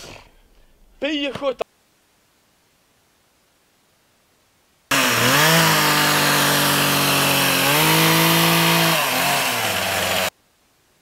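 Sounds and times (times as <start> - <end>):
chainsaw running at high revs: 4.9 - 10.3.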